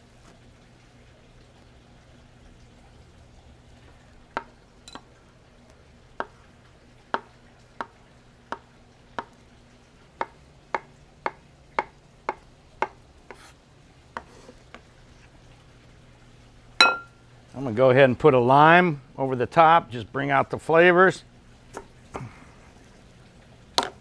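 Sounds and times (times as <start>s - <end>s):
knife chopping on wooden board: 10.2s - 13.6s.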